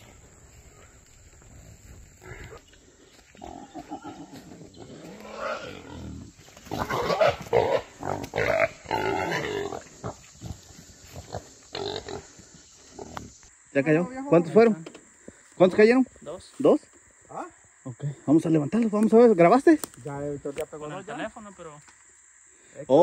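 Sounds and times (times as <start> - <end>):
hog grunting and squealing: 3.4 - 12.3.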